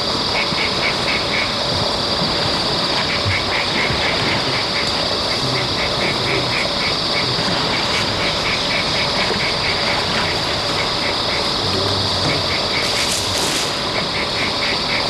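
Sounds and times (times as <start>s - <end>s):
continuous high hiss: 0.0s - 15.0s.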